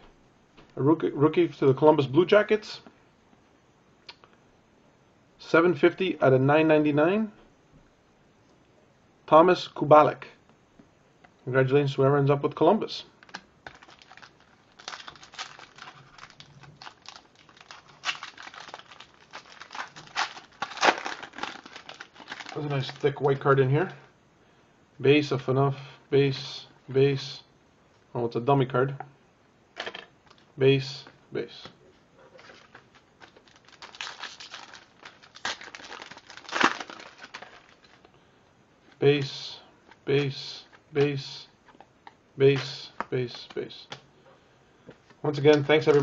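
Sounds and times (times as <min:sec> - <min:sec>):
sharp foil crackles: 0:13.2 - 0:23.0, 0:32.4 - 0:38.0
foil wrapper crinkling and tearing: 0:13.2 - 0:23.4, 0:32.4 - 0:38.0.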